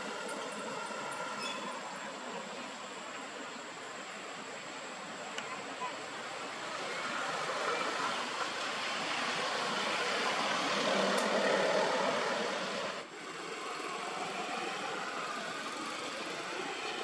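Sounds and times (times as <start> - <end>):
passing vehicle rushing: 6.8 - 17.0.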